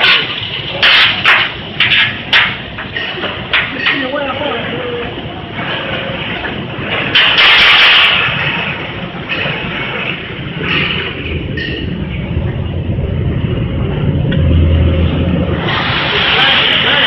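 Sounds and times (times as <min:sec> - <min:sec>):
machinery mechanical rumble: 0:00.0 - 0:17.0
bursts of rushing noise: 0:06.6 - 0:17.0
low hum: 0:08.1 - 0:17.0.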